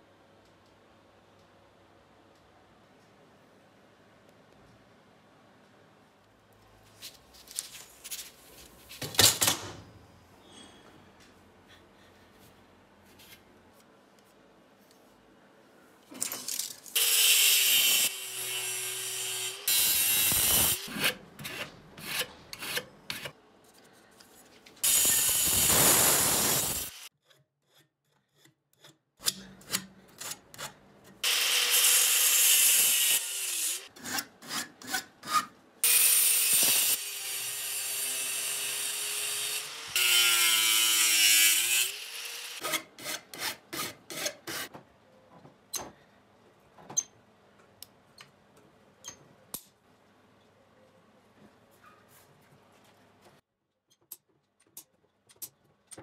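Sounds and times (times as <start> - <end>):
angle grinder cutting metal: 17.0 - 20.9, 24.8 - 27.1, 31.2 - 33.9, 35.8 - 42.7.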